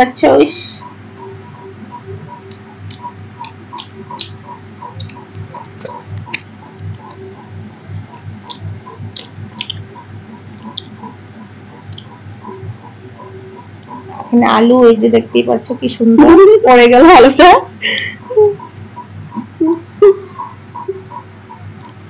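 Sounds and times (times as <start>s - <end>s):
soft repeating ticking: 0.0s - 16.0s
low hum: 0.0s - 22.0s
mouth clicks and chewing smacks: 2.3s - 12.2s.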